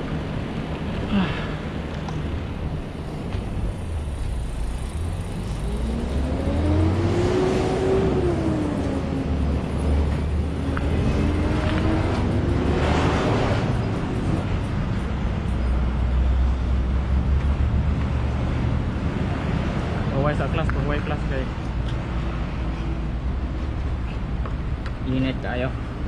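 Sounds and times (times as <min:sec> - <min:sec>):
road noise: 0:00.0 - 0:26.0
vehicle engine passing: 0:04.2 - 0:23.9.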